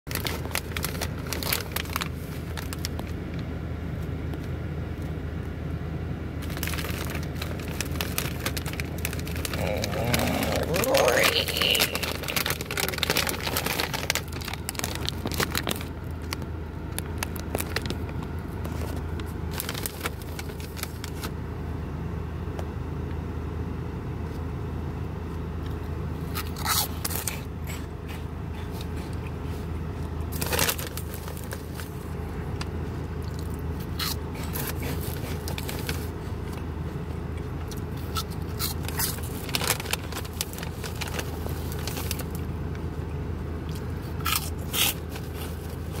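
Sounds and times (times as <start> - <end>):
snack bag crinkling: 0.1 - 3.2, 6.4 - 21.3, 26.3 - 36.6, 37.6 - 42.5, 43.7 - 46.0.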